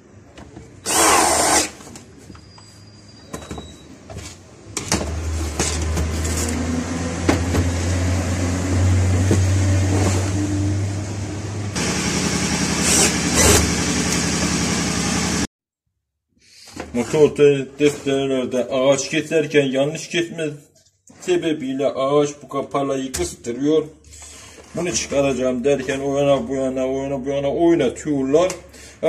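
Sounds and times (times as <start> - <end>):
cordless drill driving screw: 0.8 - 1.8.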